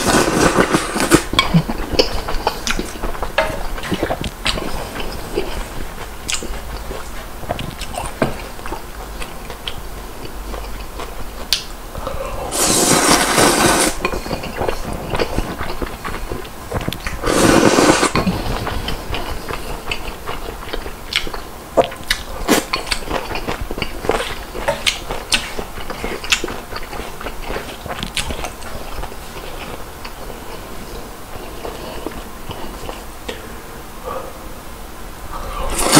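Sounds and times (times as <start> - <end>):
noodles slurped: 0.0 - 3.0, 12.5 - 20.8, 35.7 - 35.9
chewing: 0.0 - 33.4.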